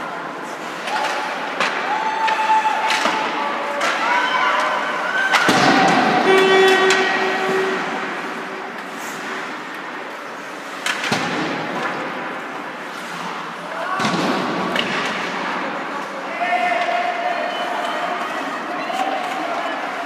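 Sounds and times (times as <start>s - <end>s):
skates and players' voices: 0.0s - 20.0s
puck and sticks hitting boards: 0.7s - 9.9s, 10.7s - 17.1s.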